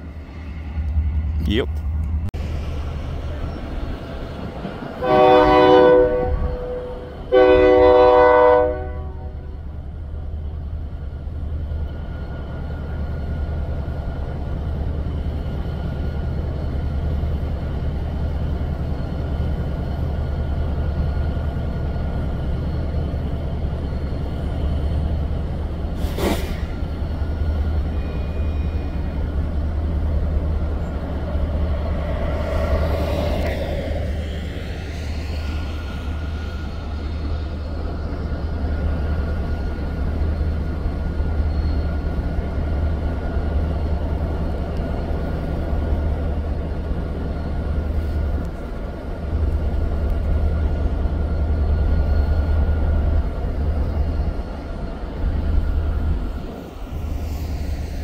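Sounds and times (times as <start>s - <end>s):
train rumbling: 0.0s - 58.0s
locomotive air horn blasts: 5.0s - 9.4s.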